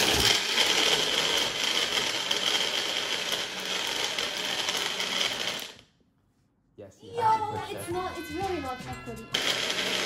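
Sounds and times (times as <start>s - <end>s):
blender motor whining: 0.0s - 5.8s, 9.2s - 10.0s.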